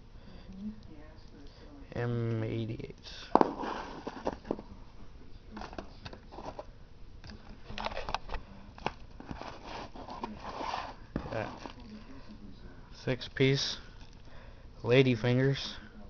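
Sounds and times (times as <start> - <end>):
cardboard and plastic rustling: 3.4 - 4.8, 5.5 - 6.7, 7.6 - 12.1.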